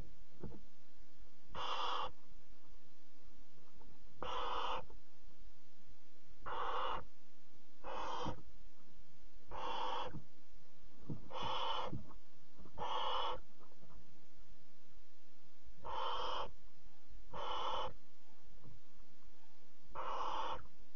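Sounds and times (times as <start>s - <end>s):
owl nestlings hissing calls: 1.5s - 2.2s, 4.2s - 5.0s, 6.4s - 7.1s, 7.8s - 8.5s, 9.5s - 10.2s, 11.2s - 12.1s, 12.7s - 13.5s, 15.8s - 16.6s, 17.3s - 18.0s, 19.9s - 20.7s.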